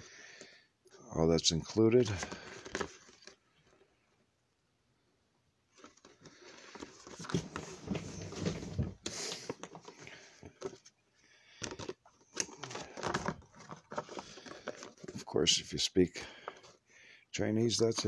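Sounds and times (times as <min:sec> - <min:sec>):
paper rustling and crackling: 0:02.0 - 0:03.4, 0:05.7 - 0:10.9, 0:11.6 - 0:15.3.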